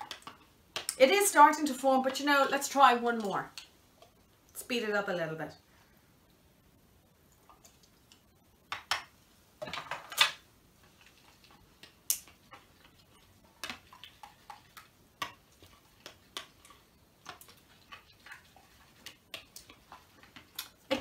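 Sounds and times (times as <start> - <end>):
utensil stirring slime: 0.0 - 4.3, 7.3 - 21.0.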